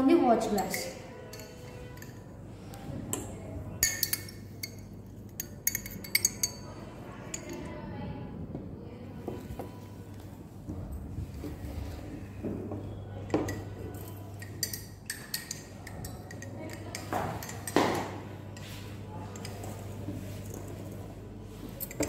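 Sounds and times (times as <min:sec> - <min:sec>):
glass dishes clinking: 0:00.6 - 0:02.3, 0:03.8 - 0:07.6, 0:13.2 - 0:20.6, 0:21.7 - 0:22.0
steady low hum: 0:00.6 - 0:22.0.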